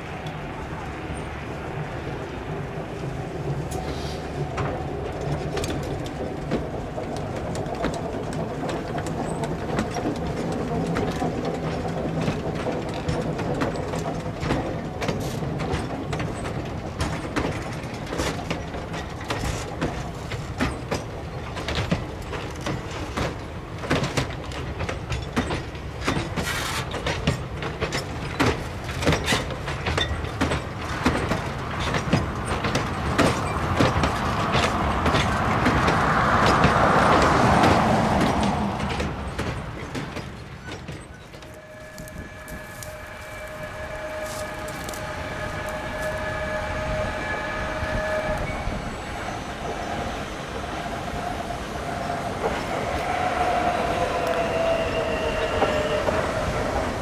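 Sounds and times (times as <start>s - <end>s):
steel wheels clicking over rail joints: 0.0s - 57.0s
train wagons rumbling past: 0.0s - 57.0s.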